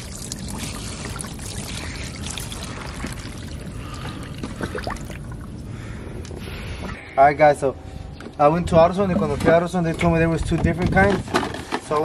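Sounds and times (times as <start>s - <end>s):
fluid pouring into drain pan: 0.0s - 5.4s.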